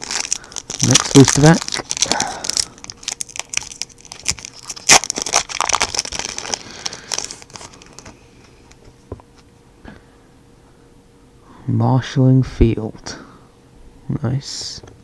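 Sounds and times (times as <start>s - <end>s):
foil wrapper crinkling: 0.0s - 8.8s.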